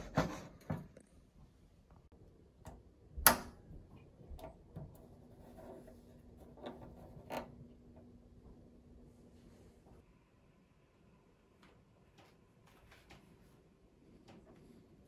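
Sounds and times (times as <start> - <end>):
faint steady hum: 0.7 - 15.0
power switch snapping on: 3.2 - 3.6.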